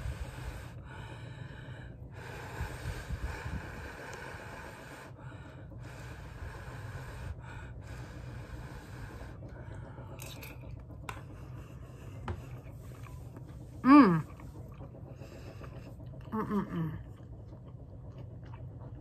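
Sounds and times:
breathing noises: 0.0s - 10.2s
low steady hum: 0.0s - 19.0s
person chewing: 12.5s - 16.3s, 17.0s - 19.0s.

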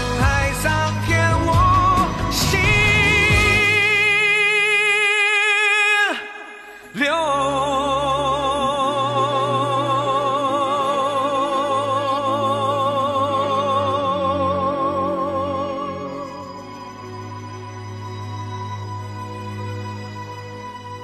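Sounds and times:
soft instrumental backing: 0.0s - 4.5s
person singing a long vibrato note: 1.1s - 17.3s.

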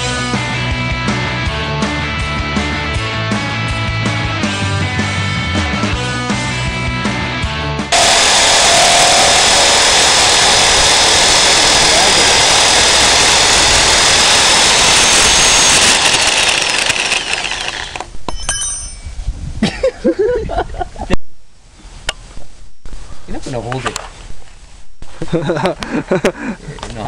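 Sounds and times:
electric drill boring through panel: 7.9s - 18.2s.

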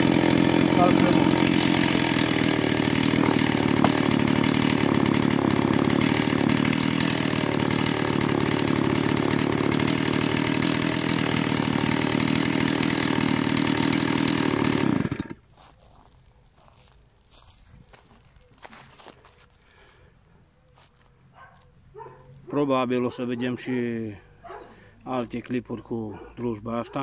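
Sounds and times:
chainsaw idling: 0.0s - 15.4s.

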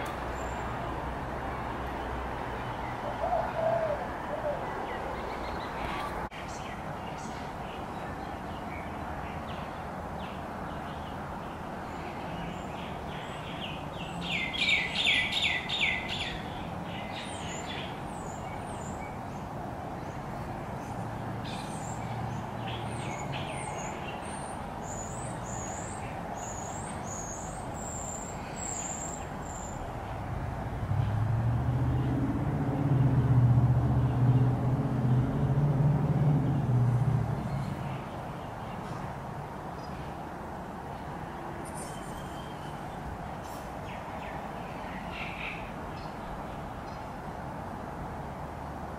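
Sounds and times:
birds chirping: 1.6s - 30.2s.

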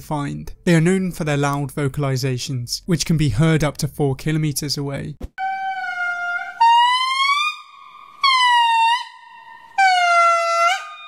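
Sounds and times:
lemur wailing song: 5.4s - 11.0s.

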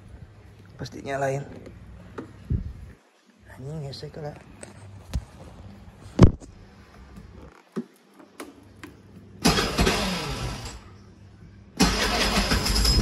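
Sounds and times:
scooter engine starting and running: 9.4s - 10.8s, 11.8s - 13.0s.

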